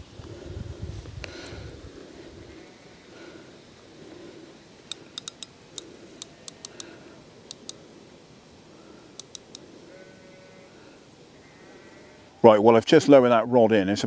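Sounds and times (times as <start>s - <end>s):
low wind noise: 0.0s - 12.0s
fishing tackle clicks: 4.9s - 6.9s, 7.5s - 7.8s, 9.2s - 9.6s.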